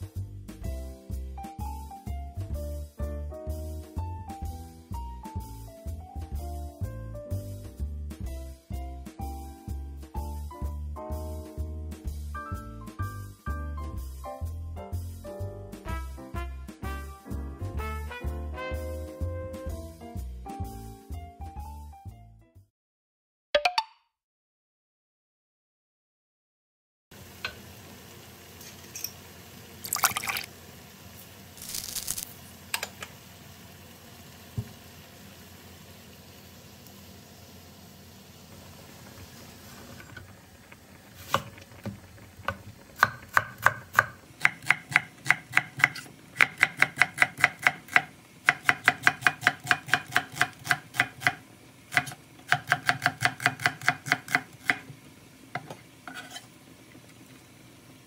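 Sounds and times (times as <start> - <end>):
knife chopping on cutting board: 43.0 - 54.9, 55.6 - 56.4.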